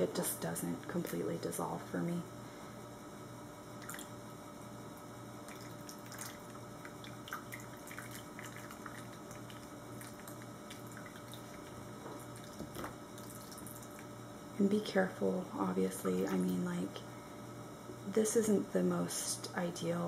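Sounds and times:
low steady hum: 0.0 - 20.0
water trickling and dripping: 5.5 - 14.1.

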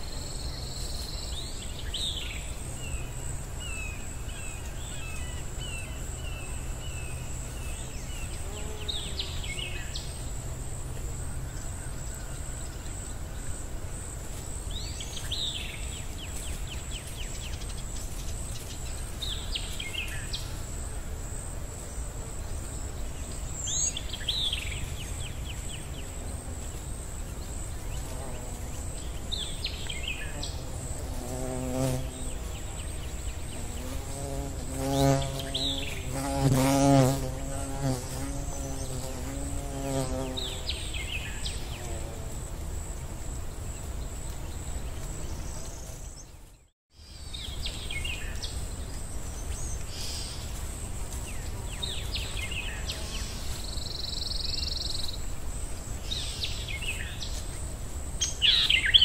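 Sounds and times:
high insect buzz: 0.0 - 59.0.

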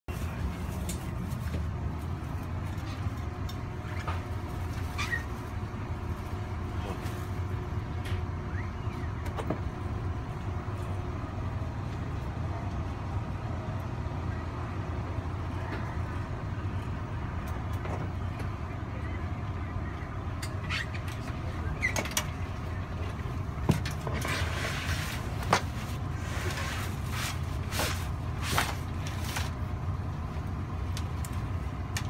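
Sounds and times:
train carriage rumble: 0.1 - 32.0
clicks and squeaks from fittings: 20.4 - 22.4.

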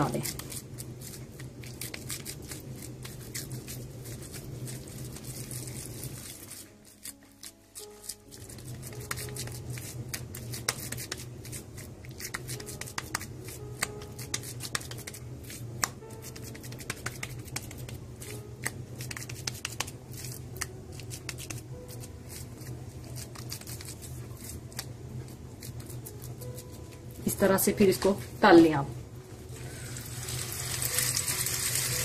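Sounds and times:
low steady hum: 8.3 - 32.0
hands patting meat patty: 8.5 - 11.5, 12.1 - 21.8.

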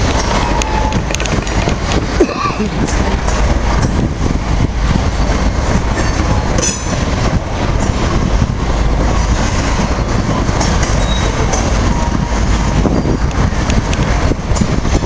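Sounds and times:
wheel clicks on rails: 0.0 - 4.0
freight train wheels rumbling: 0.0 - 15.0
high wheel squeal: 0.2 - 1.2, 9.6 - 13.6.

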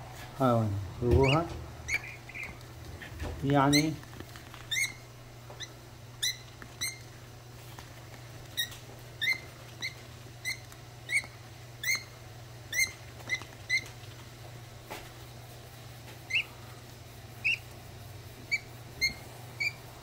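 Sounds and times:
budgerigar chick cheeping: 1.2 - 2.6, 4.7 - 7.1, 8.5 - 14.0, 16.2 - 16.6, 17.4 - 17.7, 18.4 - 19.9.

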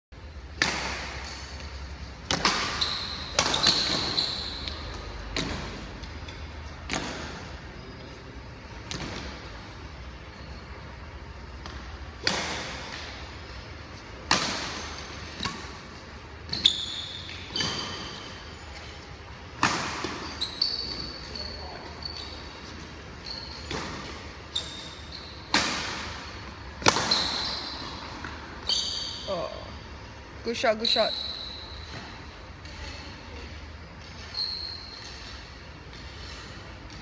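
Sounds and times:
racket striking shuttlecock: 0.5 - 5.8, 11.6 - 13.2, 14.2 - 16.7, 25.4 - 27.6
shoes squeaking on floor: 1.2 - 12.2, 13.0 - 25.6, 26.2 - 29.9, 30.5 - 32.3, 33.4 - 37.0.

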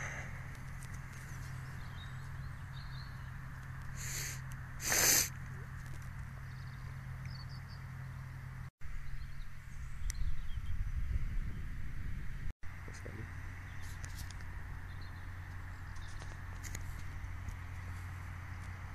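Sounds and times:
distant tractor hum: 0.0 - 18.9
wind hiss: 3.8 - 5.4
short loud hiss: 4.0 - 5.4.

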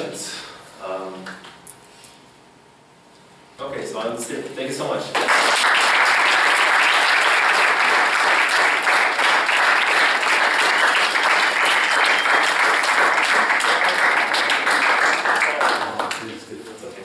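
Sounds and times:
audience applauding: 5.2 - 16.4.

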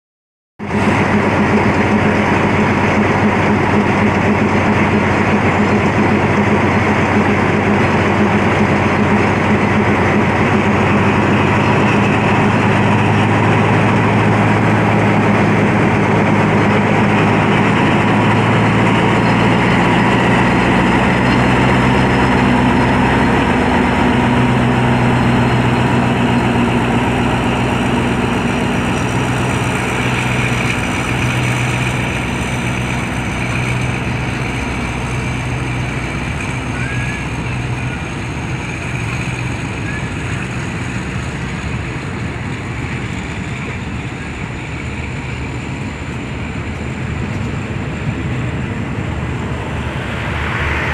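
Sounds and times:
locomotive diesel engine running: 0.6 - 50.9.

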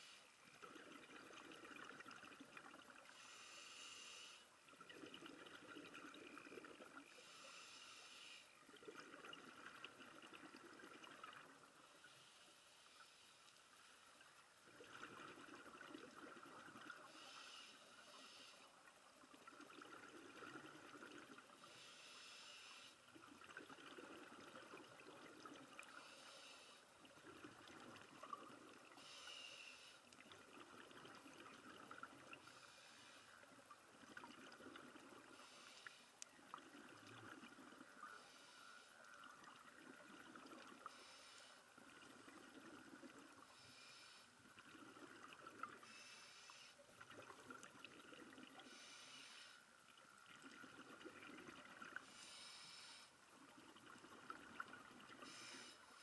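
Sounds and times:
regulator inhalation hiss: 3.1 - 4.4, 7.2 - 8.5, 17.0 - 18.7, 21.6 - 23.0, 25.9 - 26.8, 29.0 - 30.0, 45.8 - 46.8, 48.6 - 49.6, 52.0 - 53.1, 55.2 - 56.0.

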